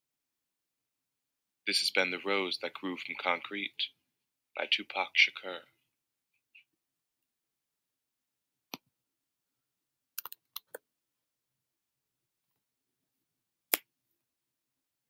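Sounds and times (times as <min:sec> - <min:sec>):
mouse and keyboard clicks: 0:10.2 - 0:10.8.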